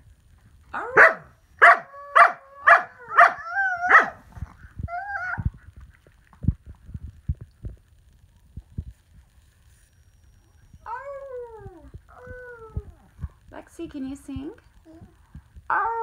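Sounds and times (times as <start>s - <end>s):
dog barking howls: 0.8s - 4.2s
dog wavering call: 10.2s - 13.1s.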